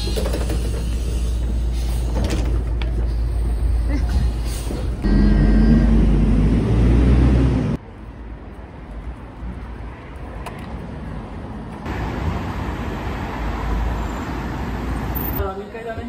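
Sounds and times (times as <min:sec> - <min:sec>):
loud low vehicle engine rumble: 0:00.0 - 0:08.2
road traffic: 0:00.0 - 0:16.0.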